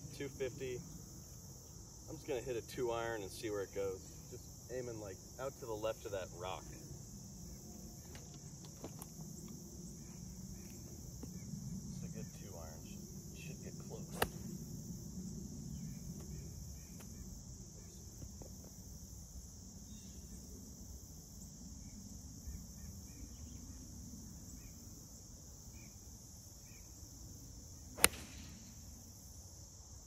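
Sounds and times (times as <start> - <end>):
insects humming: 0.0 - 30.0
golf club striking ball: 14.2 - 14.6, 28.0 - 28.7.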